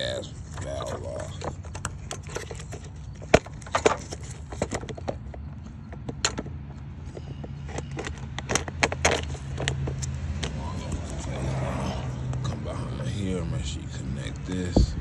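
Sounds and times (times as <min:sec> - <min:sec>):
plastic and metal parts clicking: 0:00.4 - 0:11.2.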